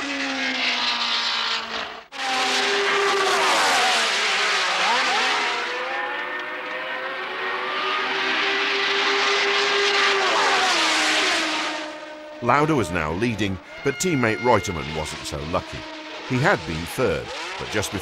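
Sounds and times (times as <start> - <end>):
racing cars passing at full throttle: 0.0 - 18.0.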